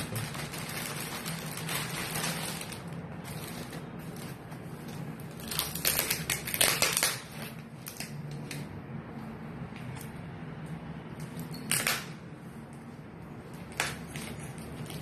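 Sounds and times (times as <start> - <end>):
plastic packaging crinkling: 0.0 - 8.7.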